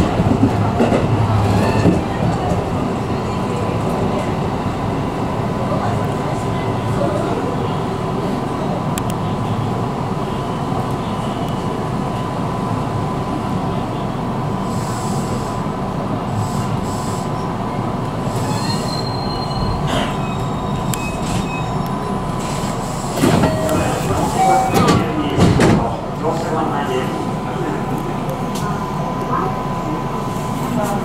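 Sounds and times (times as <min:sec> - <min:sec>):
train wheels rumbling on rail: 0:00.0 - 0:31.0
high wheel squeal: 0:18.2 - 0:25.0.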